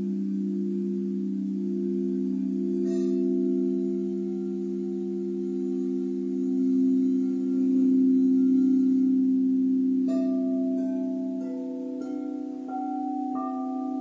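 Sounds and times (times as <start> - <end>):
low held drone tones: 0.0 - 14.0
struck crystal bell notes: 10.5 - 14.0.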